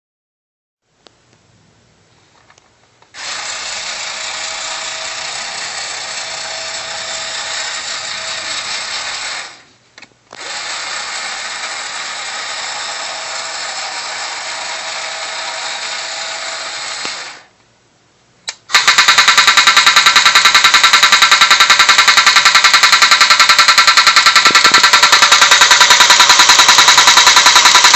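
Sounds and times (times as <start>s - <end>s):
toy motor whirring: 3.2s - 9.6s, 10.3s - 17.5s, 18.7s - 27.9s
fast even rattle: 18.7s - 27.9s.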